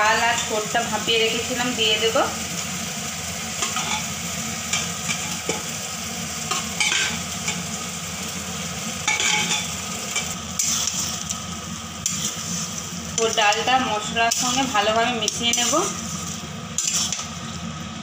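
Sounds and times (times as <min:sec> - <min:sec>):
food sizzling in oily pan: 0:00.0 - 0:18.0
metal spatula scraping pan: 0:09.1 - 0:11.1, 0:14.3 - 0:17.3.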